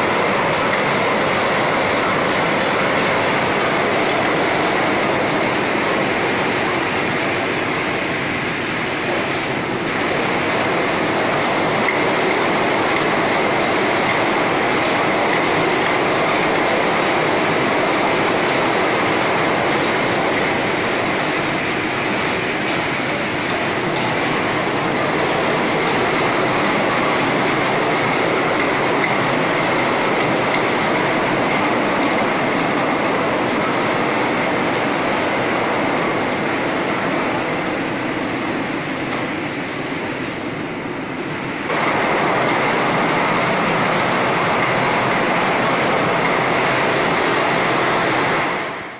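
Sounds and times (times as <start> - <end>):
bottles clattering on a conveyor: 0.0 - 36.7, 41.7 - 48.9
machine noise: 0.0 - 48.9.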